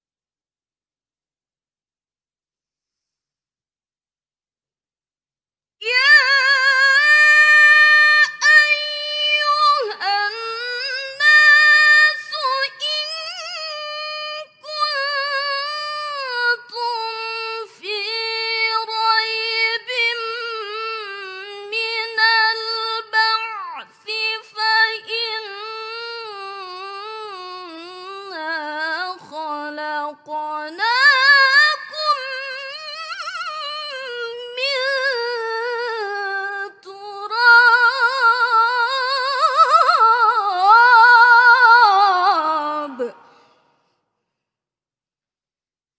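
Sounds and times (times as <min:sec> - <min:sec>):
girl reciting melodically: 0:05.9 - 0:12.8.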